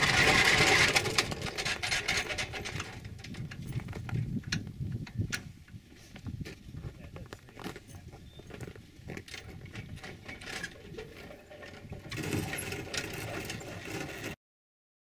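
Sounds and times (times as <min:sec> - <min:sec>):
hand winch ratchet clicking: 0:00.0 - 0:03.8, 0:09.3 - 0:14.4.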